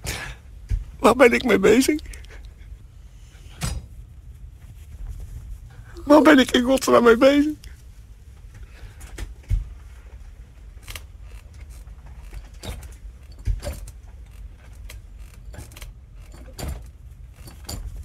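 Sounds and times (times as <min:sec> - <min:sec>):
low steady rumble: 0:00.0 - 0:18.0
faint creaks and clicks: 0:07.6 - 0:18.0.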